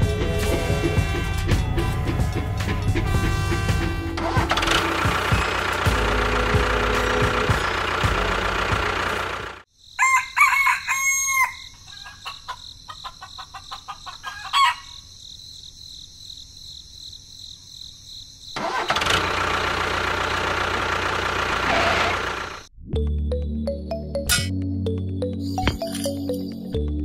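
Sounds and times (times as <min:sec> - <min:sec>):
engine running: 0:02.2 - 0:09.7, 0:18.6 - 0:22.7
rooster crowing: 0:10.0 - 0:12.6, 0:14.2 - 0:15.0.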